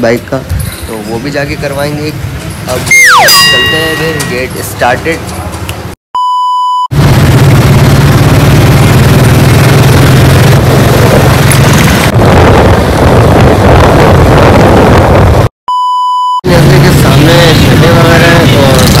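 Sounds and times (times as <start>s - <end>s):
electronic beep tone: 6.2s - 6.9s, 15.7s - 16.4s
motorcycle engine running: 6.9s - 12.1s
wind buffeting microphone: 10.4s - 15.5s.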